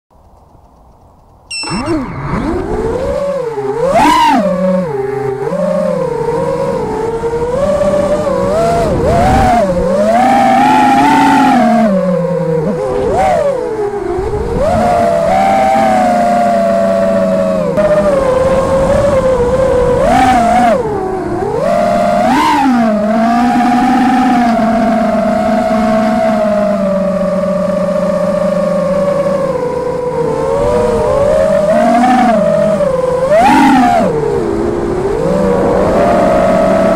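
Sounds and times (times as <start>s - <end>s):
drone propellers whining: 1.5s - 36.9s.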